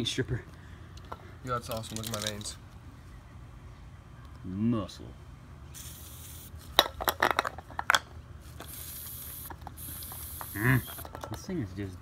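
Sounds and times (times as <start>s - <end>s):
aerosol can spraying: 5.8s - 6.5s, 8.6s - 11.1s.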